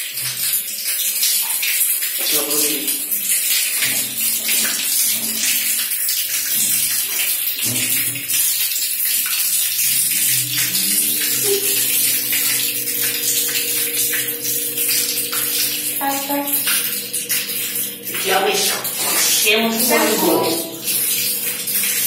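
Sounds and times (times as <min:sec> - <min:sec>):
water splashing from tap: 0:00.0 - 0:22.0
low steady hum: 0:09.8 - 0:22.0.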